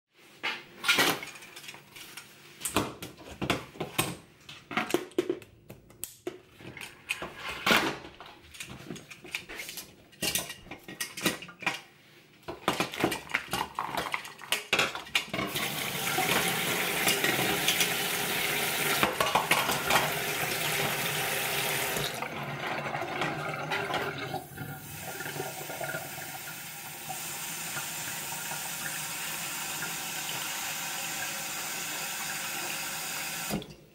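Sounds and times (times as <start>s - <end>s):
tap water running into sink: 15.2s - 33.8s.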